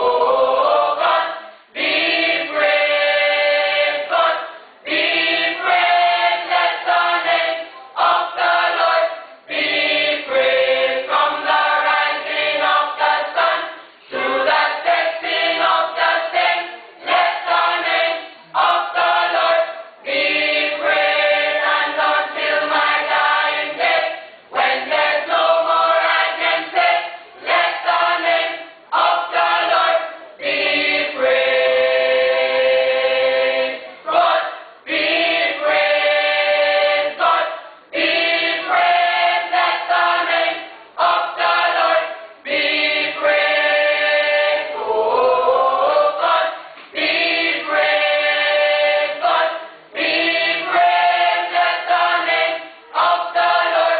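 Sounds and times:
church choir singing: 0:00.0 - 0:53.9.

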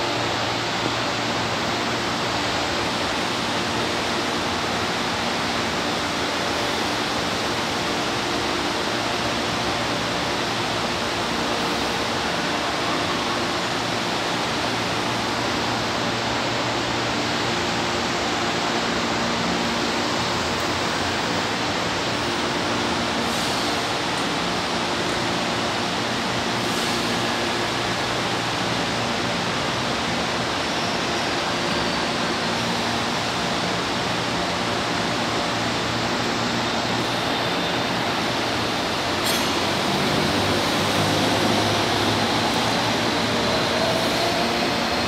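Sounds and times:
train ventilation hiss and hum: 0:00.0 - 0:45.0.

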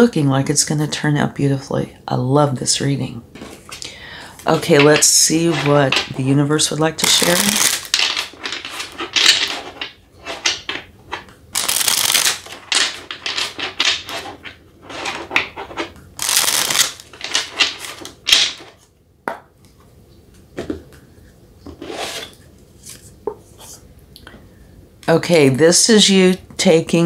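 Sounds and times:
cards being shuffled: 0:07.0 - 0:18.8.

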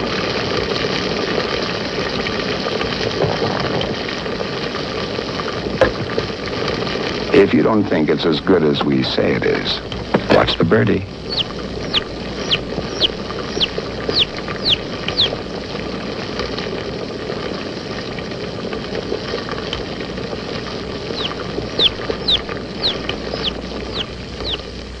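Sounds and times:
steady hiss and hum: 0:00.0 - 0:25.0
chick peeping: 0:11.1 - 0:15.7, 0:21.0 - 0:24.8.

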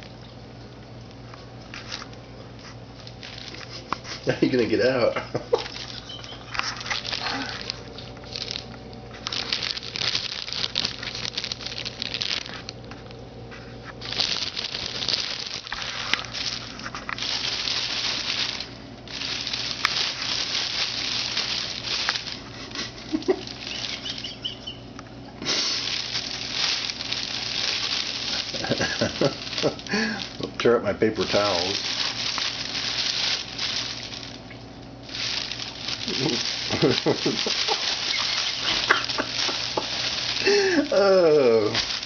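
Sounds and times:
plastic bag crinkling: 0:00.0 - 0:42.0.

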